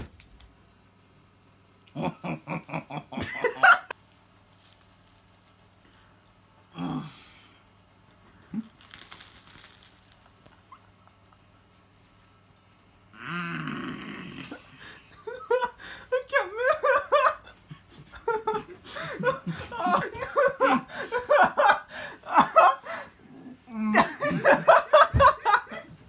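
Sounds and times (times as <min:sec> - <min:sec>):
person laughing: 0:01.9 - 0:04.0, 0:08.0 - 0:08.9, 0:10.2 - 0:11.7, 0:14.4 - 0:26.0.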